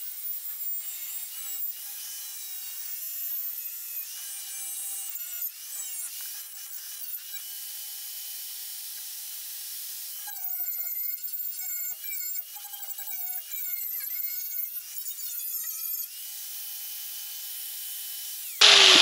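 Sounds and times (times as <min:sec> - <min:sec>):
power tool wire wheel whining: 0:18.6 - 0:19.0.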